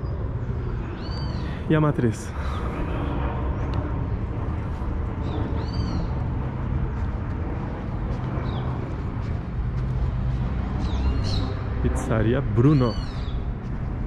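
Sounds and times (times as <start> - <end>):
city traffic rumble: 0.0 - 14.0
bird chirps: 0.9 - 1.6, 10.8 - 11.6, 12.6 - 13.4.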